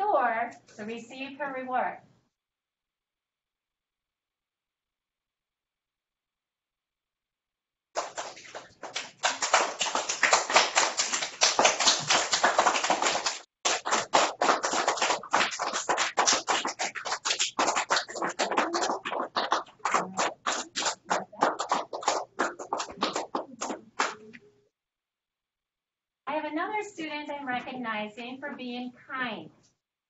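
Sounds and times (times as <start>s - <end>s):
children clapping: 8.0s - 24.4s.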